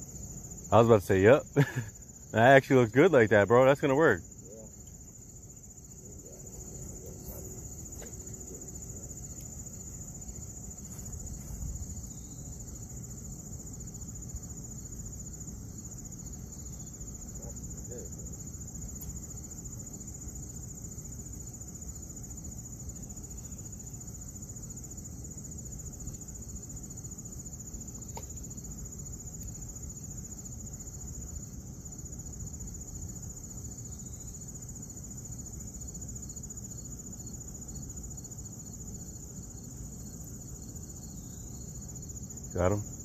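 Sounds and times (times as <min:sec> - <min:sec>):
insects chirping chorus: 0:00.0 - 0:43.0.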